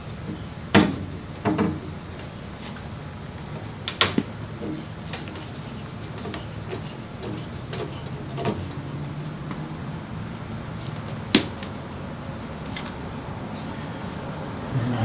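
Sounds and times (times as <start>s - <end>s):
steady low hum: 0.0s - 15.0s
wooden parts knocking: 0.2s - 2.8s, 3.4s - 9.7s.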